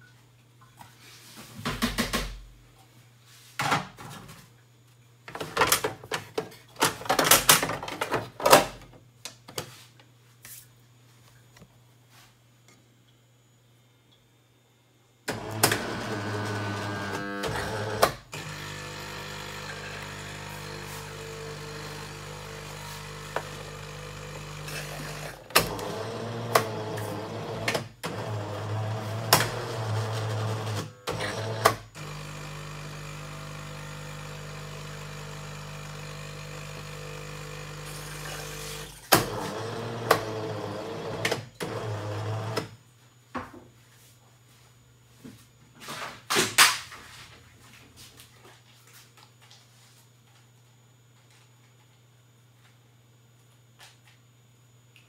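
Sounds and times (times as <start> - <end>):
coffee machine pump humming: 15.3 - 42.7.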